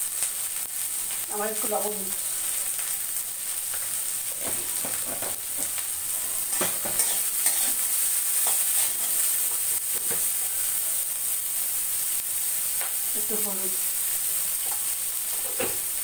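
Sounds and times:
vegetables sizzling in hot oil: 0:00.0 - 0:16.0
metal spatula scraping pan: 0:06.4 - 0:10.3.

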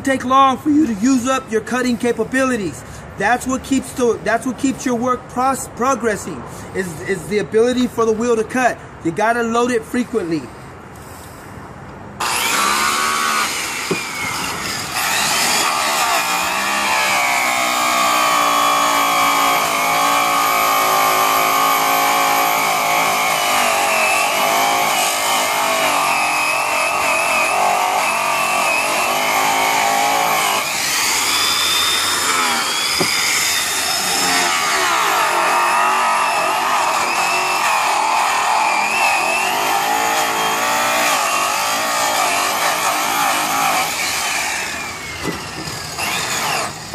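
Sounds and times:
electric polisher motor whining: 0:12.2 - 0:46.9.

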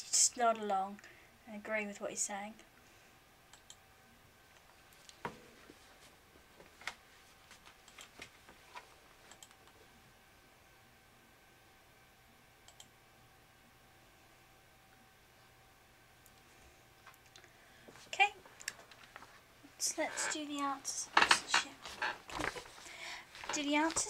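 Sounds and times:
keyboard and mouse clicks: 0:03.5 - 0:03.8, 0:07.8 - 0:08.3, 0:09.3 - 0:09.8, 0:12.7 - 0:12.9.

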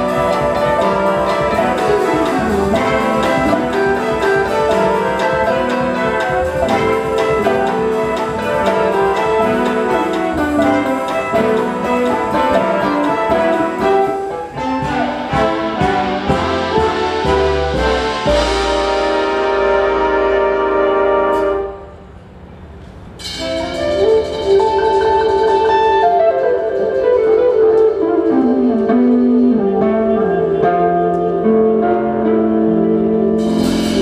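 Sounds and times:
big band playing bossa nova: 0:00.0 - 0:34.0
cymbal wash: 0:33.4 - 0:34.0.

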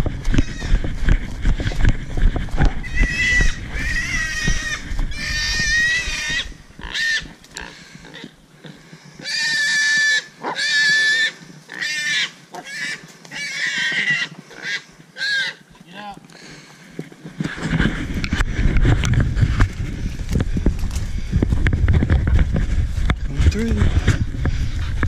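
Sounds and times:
running footsteps through brush: 0:00.0 - 0:09.7, 0:16.3 - 0:25.0
wild hog squealing: 0:00.3 - 0:00.8, 0:02.8 - 0:08.3, 0:09.2 - 0:15.7.

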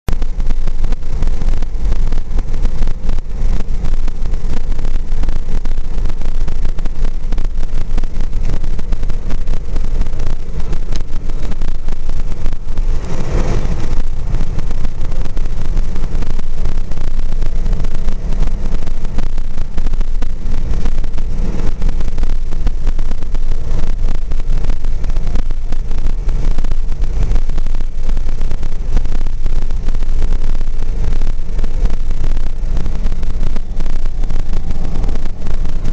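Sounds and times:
car road and wind noise: 0:00.0 - 0:35.9.

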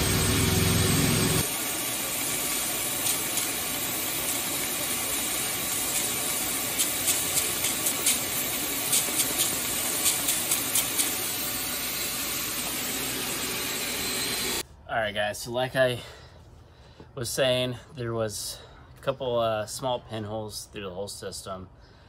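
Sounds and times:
shop vac blowing air: 0:00.0 - 0:14.6.

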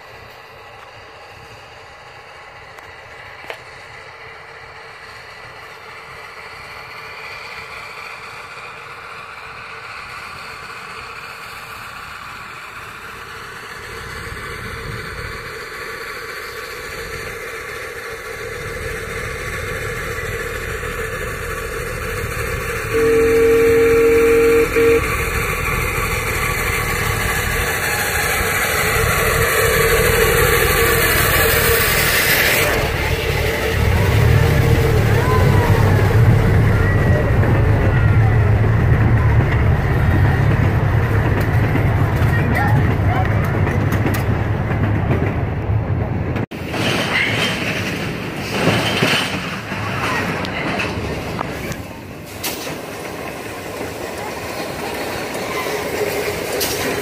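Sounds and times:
steam locomotive running: 0:00.0 - 0:57.0
multi-tone train whistle: 0:20.7 - 0:32.9, 0:33.8 - 0:39.5.

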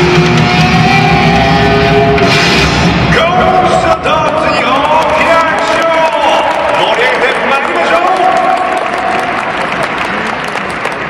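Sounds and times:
crowd applauding: 0:03.7 - 0:11.0.

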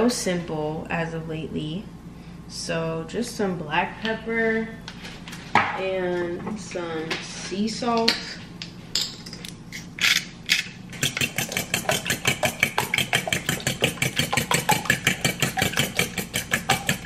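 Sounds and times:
whisk beating eggs in metal bowl: 0:10.9 - 0:17.0.

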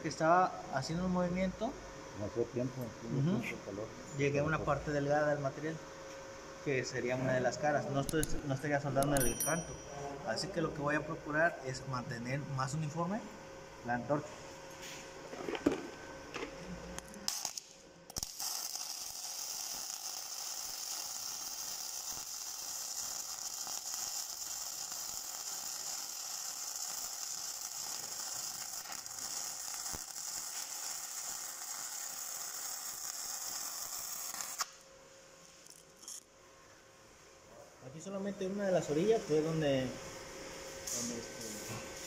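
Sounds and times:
crackling welding arc: 0:06.9 - 0:09.3, 0:16.6 - 0:34.9.

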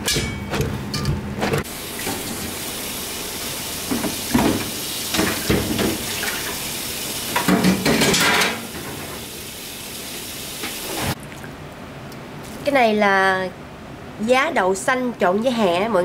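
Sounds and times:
tap water running into sink: 0:01.7 - 0:03.0, 0:03.7 - 0:11.1
dishes clattering: 0:07.4 - 0:09.0.

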